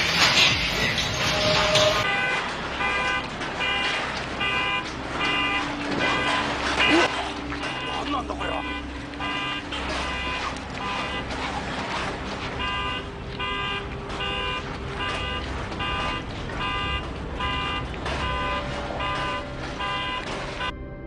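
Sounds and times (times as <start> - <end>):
car alarm horn honking: 0.0 - 20.8.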